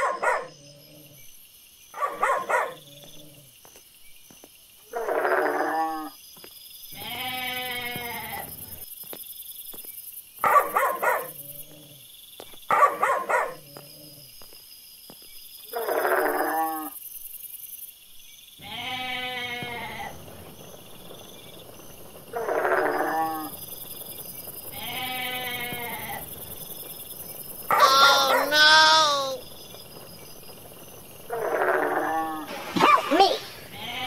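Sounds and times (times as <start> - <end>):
dog barking: 0.0 - 0.6, 2.0 - 2.8, 10.4 - 11.4, 12.7 - 13.7, 27.7 - 29.4, 32.7 - 33.5
sheep bleating: 7.0 - 8.5, 18.6 - 20.2, 24.7 - 26.2, 27.7 - 29.4, 33.2 - 34.0.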